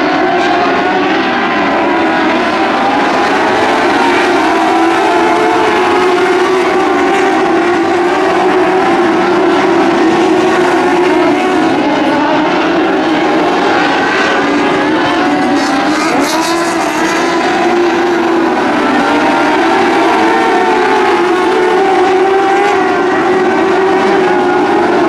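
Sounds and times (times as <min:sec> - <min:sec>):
race car engines droning: 0:00.0 - 0:25.0.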